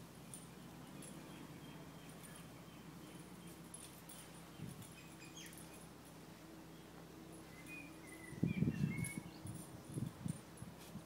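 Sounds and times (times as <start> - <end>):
faint high chirps: 6.8 - 9.6.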